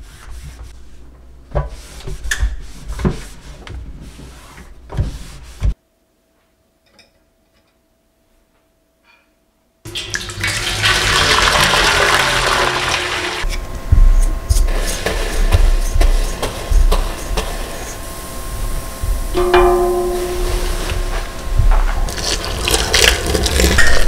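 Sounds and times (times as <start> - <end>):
cloth rubbing on wet sink: 0.0 - 5.8
tap water pouring into basin: 9.9 - 13.4.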